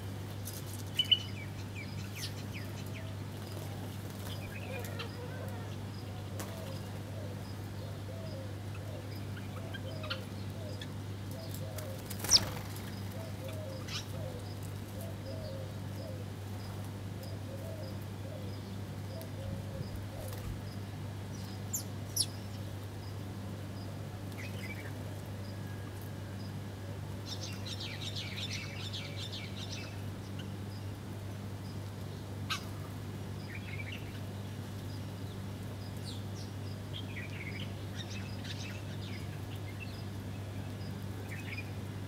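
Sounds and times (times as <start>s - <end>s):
sparrows chirping: 0.0s - 42.0s
wings flapping: 11.9s - 13.2s.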